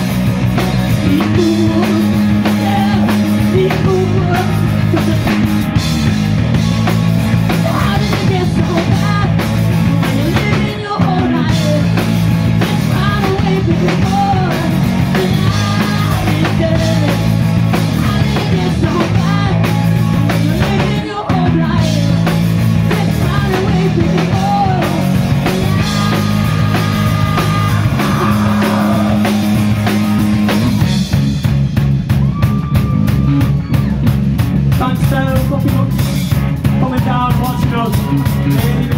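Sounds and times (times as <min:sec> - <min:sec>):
bass guitar: 0:00.0 - 0:38.9
drums: 0:00.0 - 0:38.9
electric guitar: 0:00.0 - 0:38.9
person singing: 0:00.9 - 0:05.7, 0:07.5 - 0:30.1, 0:36.8 - 0:38.9.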